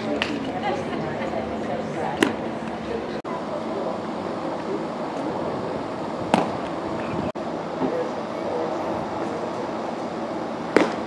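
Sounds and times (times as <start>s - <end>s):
crowd chatter: 0.0s - 11.0s
sharp crack: 10.7s - 11.0s.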